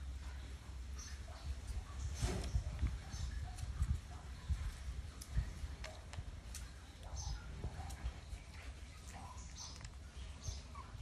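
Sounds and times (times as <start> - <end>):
faint clicking and smacking: 0.2 - 11.0
puppies suckling: 6.9 - 11.0.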